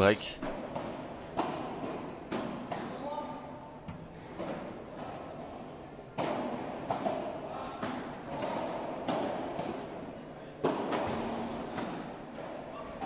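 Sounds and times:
rackets hitting ball: 0.5 - 3.0, 6.1 - 13.0.

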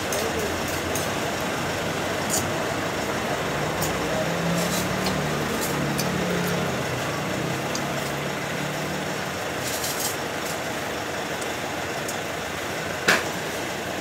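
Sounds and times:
vehicle engine noise: 0.0 - 14.0.

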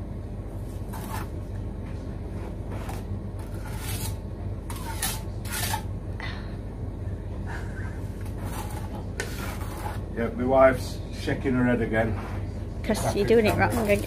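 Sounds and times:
steady low hum: 0.0 - 14.0
trowel scraping mortar on brick: 0.9 - 1.3, 2.8 - 5.9, 8.2 - 10.1, 13.2 - 14.0.

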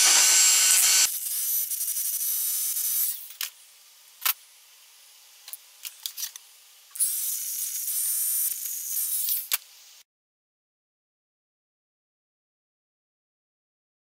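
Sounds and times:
high steady whine: 0.0 - 1.1.

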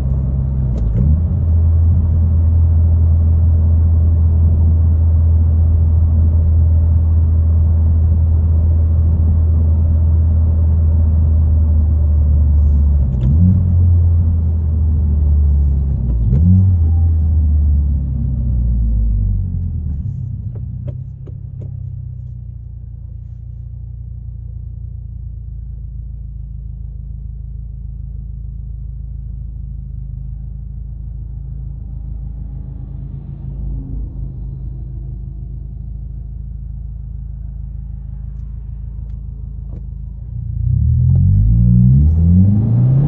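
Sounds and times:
car exhaust drone: 0.0 - 43.0.

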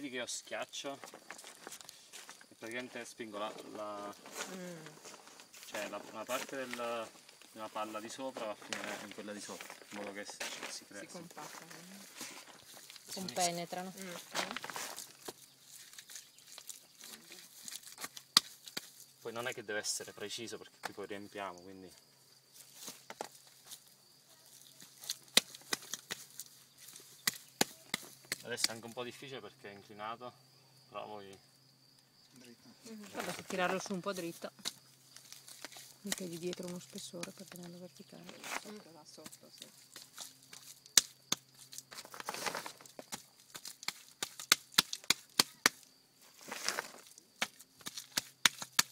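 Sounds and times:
crackles and sharp clicks: 34.6 - 37.7
hands patting wet earth: 38.5 - 48.9.

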